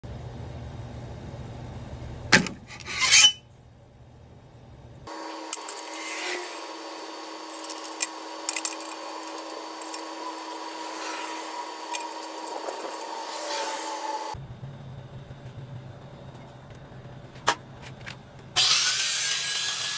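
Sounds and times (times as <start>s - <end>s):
steady mechanical hum: 0.0s - 19.9s
metal scraping: 2.6s - 3.4s, 5.5s - 14.4s.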